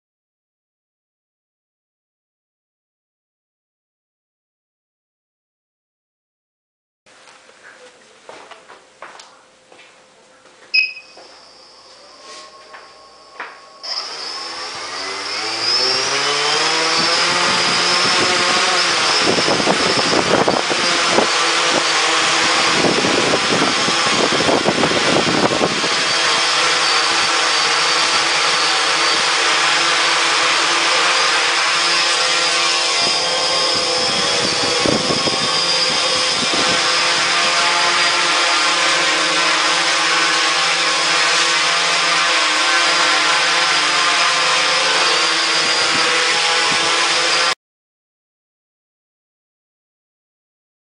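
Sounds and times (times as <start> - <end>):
quadcopter motors buzzing: 11.2 - 47.6
propeller wash rushing: 13.9 - 41.0.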